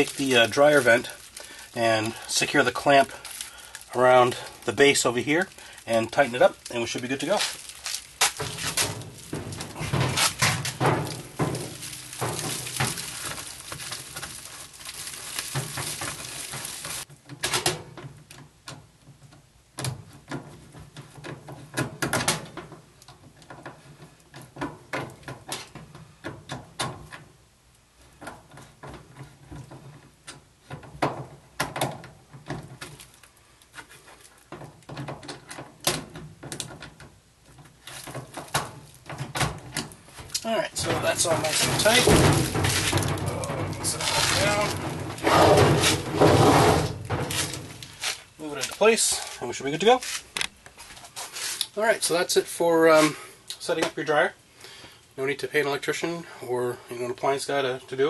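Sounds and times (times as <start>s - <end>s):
foil duct crinkling and rustling: 0.0s - 17.1s, 32.6s - 34.9s, 37.5s - 51.8s.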